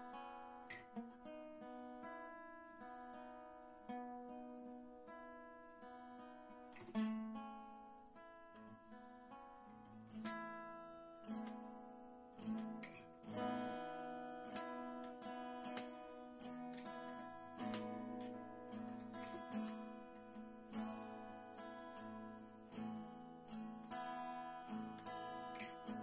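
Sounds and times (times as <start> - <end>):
acoustic guitar chords ringing: 0.0 - 26.0.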